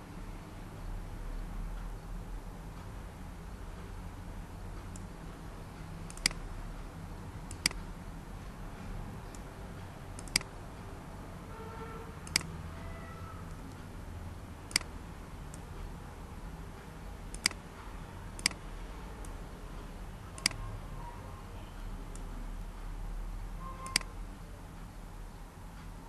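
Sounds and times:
low background hum: 0:00.0 - 0:26.0
computer mouse clicking: 0:06.0 - 0:06.4, 0:07.5 - 0:07.8, 0:10.1 - 0:10.6, 0:12.2 - 0:12.6, 0:14.7 - 0:15.7, 0:17.3 - 0:17.6, 0:18.3 - 0:18.6, 0:20.3 - 0:20.7, 0:23.8 - 0:24.1.

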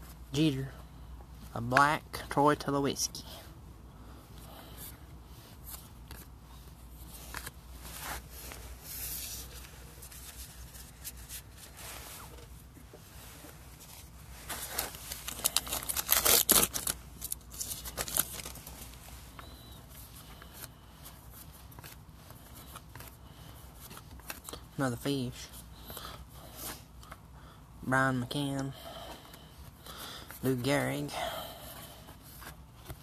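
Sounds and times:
wrappers crinkling and tearing: 0:13.9 - 0:19.0.

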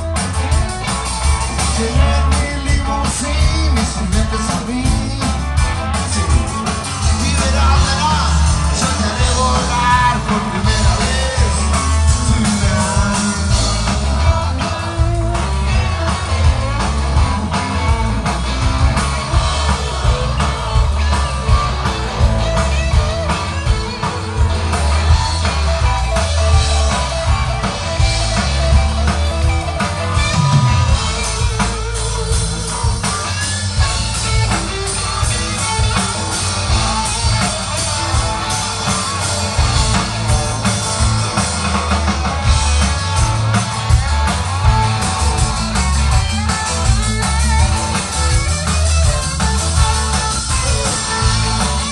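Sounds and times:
bass guitar: 0:00.0 - 0:51.9
drums: 0:00.0 - 0:51.9
electric guitars: 0:00.0 - 0:51.9
lead vocalist singing: 0:01.6 - 0:14.8.

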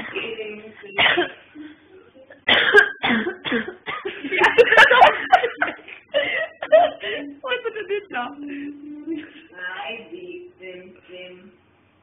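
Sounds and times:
person coughing: 0:01.0 - 0:01.4, 0:02.5 - 0:04.1.

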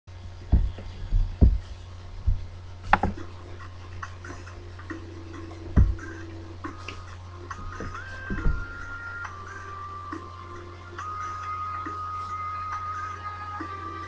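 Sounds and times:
low electrical hum: 0:00.1 - 0:14.0
pen and paper knocking on desk: 0:02.9 - 0:03.2.

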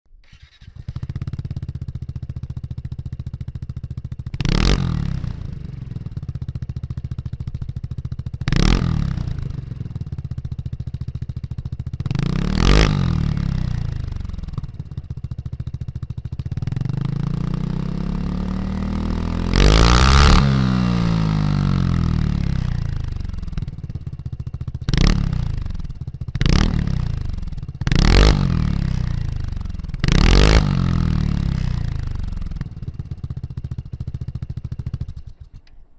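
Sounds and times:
scooter engine idling and revving: 0:00.3 - 0:35.7.

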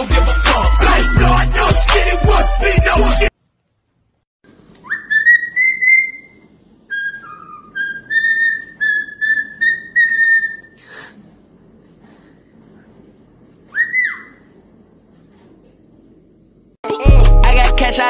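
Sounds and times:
parrot whistling: 0:04.8 - 0:10.8, 0:13.7 - 0:14.5.

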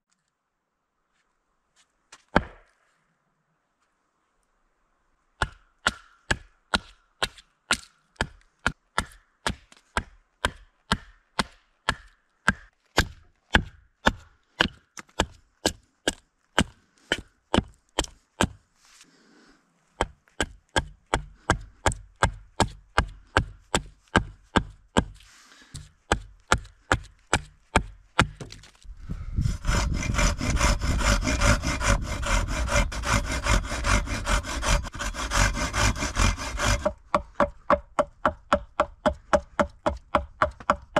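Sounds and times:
axe chopping wood: 0:02.2 - 0:02.8, 0:05.4 - 0:18.6, 0:20.0 - 0:25.2, 0:25.8 - 0:28.8, 0:29.7 - 0:40.9
hand saw cutting wood: 0:29.3 - 0:40.9.

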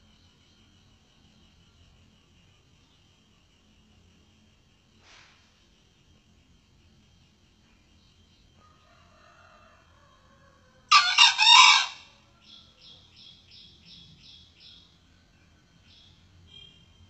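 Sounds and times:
junglefowl crowing: 0:08.6 - 0:12.6.

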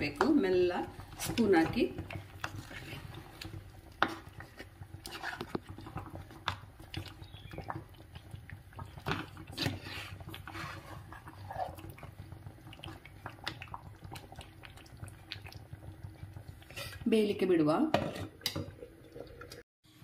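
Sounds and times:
wooden spoon scraping clay pot: 0:00.0 - 0:06.1, 0:09.1 - 0:11.8, 0:17.9 - 0:18.4.

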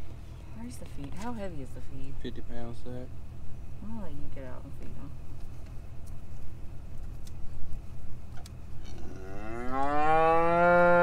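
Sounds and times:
cow mooing: 0:08.8 - 0:11.0.

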